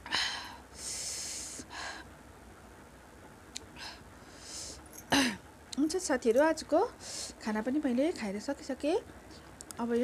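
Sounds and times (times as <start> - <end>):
person breathing close to microphone: 0.0 - 2.1, 7.0 - 7.4.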